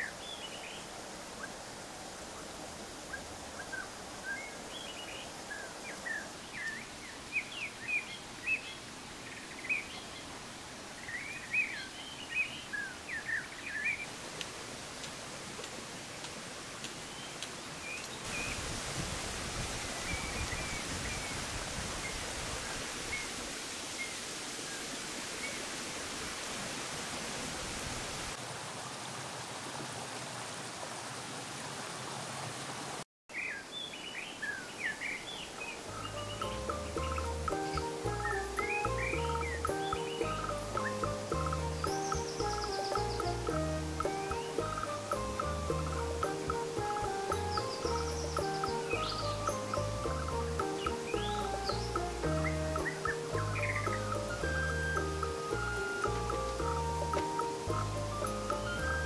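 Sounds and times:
small birds chirping: 0.0 - 1.6, 2.4 - 14.2, 16.2 - 18.7, 33.3 - 59.0
flowing water rushing: 0.0 - 59.0.

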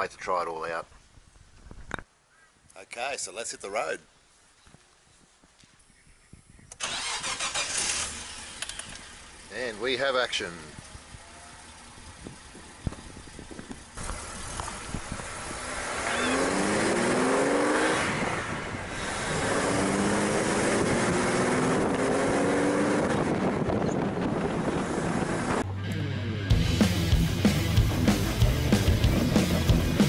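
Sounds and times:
road and wind noise: 0.0 - 2.7, 4.7 - 26.1
car engine accelerating: 6.8 - 30.0.

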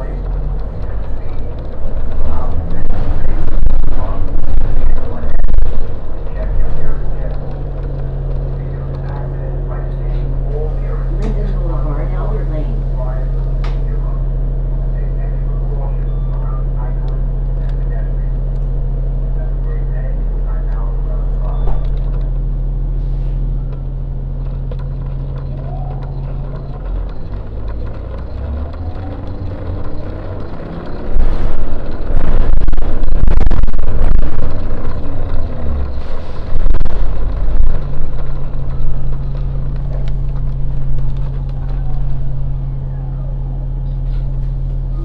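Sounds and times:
bus drivetrain hum: 0.0 - 45.0
bus whines and rattles: 0.0 - 45.0.

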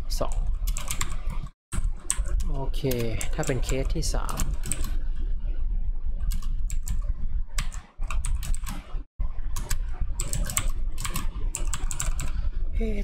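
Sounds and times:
low hum: 0.0 - 13.0
typing on computer keyboard: 0.7 - 5.0, 7.6 - 8.9, 9.6 - 12.4.

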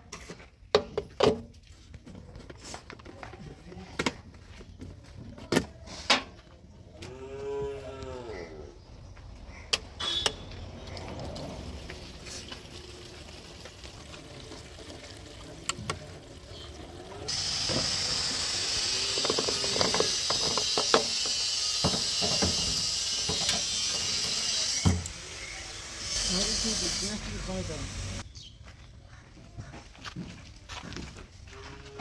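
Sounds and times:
fuel pouring with gurgles: 10.1 - 23.4.

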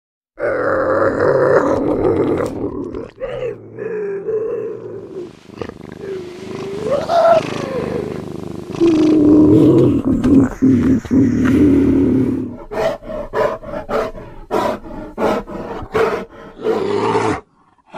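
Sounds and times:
lynx yowling: 6.0 - 8.2.

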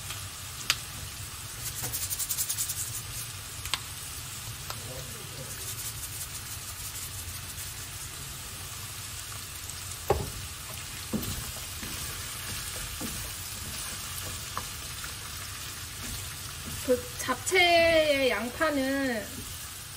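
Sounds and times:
spatula turning vegetables: 0.0 - 19.9
vegetables sizzling in a frying pan: 0.0 - 19.9
sharp knocks against pan: 10.1 - 10.4.

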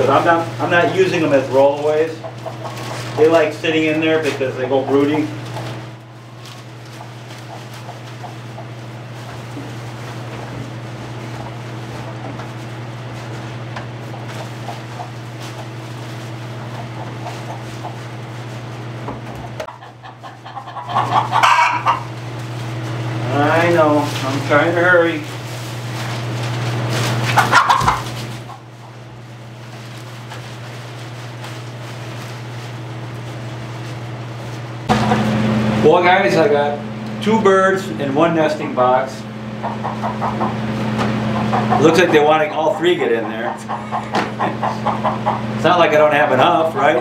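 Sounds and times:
rustle of wood shavings: 0.0 - 34.9
low mechanical hum: 0.0 - 47.0.

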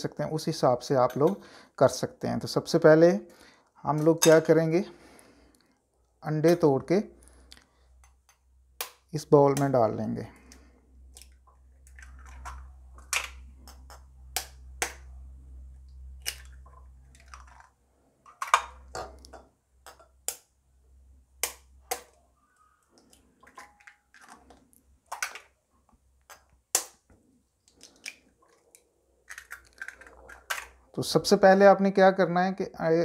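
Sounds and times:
eggshells cracking with spoon: 10.5 - 15.1, 16.1 - 20.5, 23.0 - 25.5, 27.7 - 30.8.

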